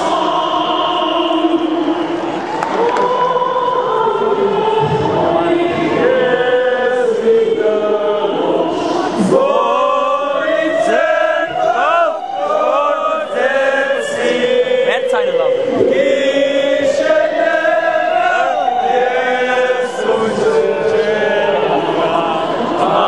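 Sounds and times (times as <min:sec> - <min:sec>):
choir singing: 0:00.0 - 0:23.0.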